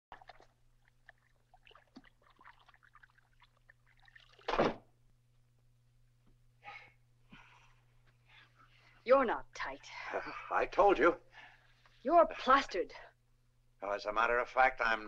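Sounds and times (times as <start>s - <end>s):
water splashing in a bathtub: 0.1s - 4.9s.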